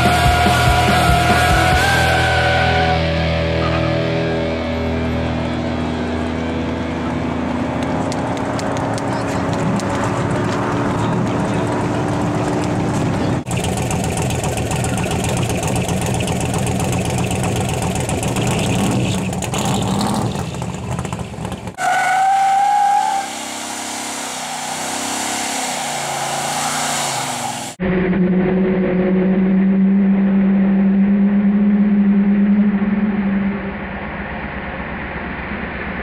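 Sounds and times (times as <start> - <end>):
cars racing: 0.0 - 36.0
loud engine exhaust: 0.0 - 36.0
tyre squeal: 21.8 - 27.8.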